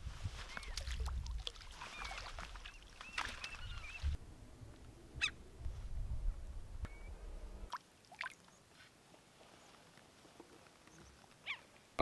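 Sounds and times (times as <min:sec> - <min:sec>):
wild birds chirping: 0:01.8 - 0:04.2, 0:05.1 - 0:05.5, 0:10.7 - 0:12.0.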